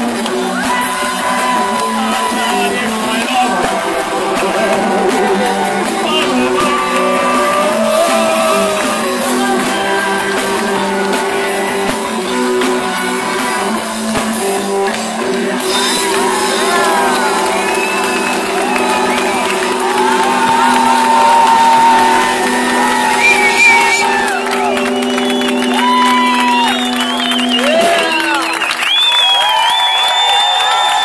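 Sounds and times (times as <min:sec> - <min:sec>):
drums: 0:00.0 - 0:31.0
electric guitars: 0:00.0 - 0:31.0
male and female singing: 0:01.2 - 0:14.6.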